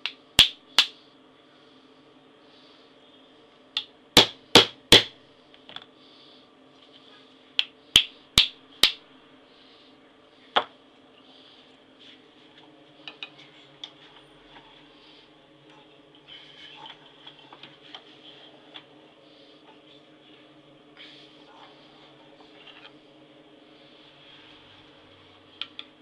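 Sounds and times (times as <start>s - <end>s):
faint steady hum: 0.0s - 26.0s.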